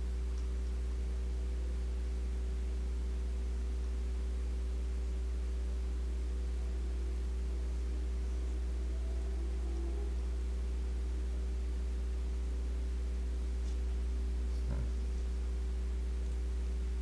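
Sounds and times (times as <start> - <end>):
electrical mains hum: 0.0 - 17.0
faint high steady tones: 5.8 - 14.4.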